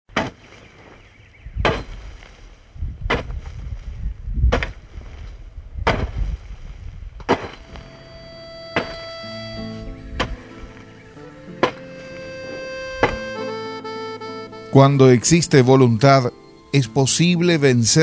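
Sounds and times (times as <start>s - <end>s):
hoe chopping dry soil: 0.1s - 7.9s, 10.2s - 10.7s, 11.5s - 12.1s, 13.0s - 13.4s
music: 7.5s - 18.0s.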